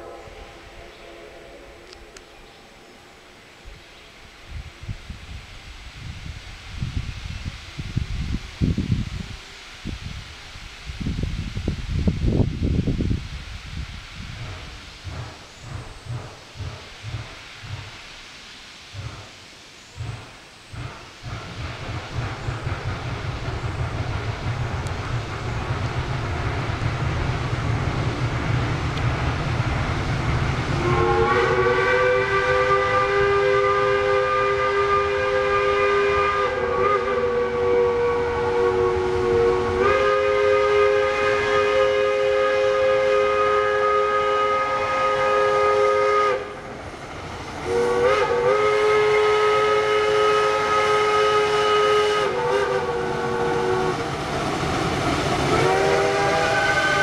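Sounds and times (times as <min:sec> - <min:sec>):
steam locomotive whistle: 0:00.0 - 0:02.2, 0:30.7 - 0:46.7, 0:47.6 - 0:54.1, 0:55.4 - 0:57.0.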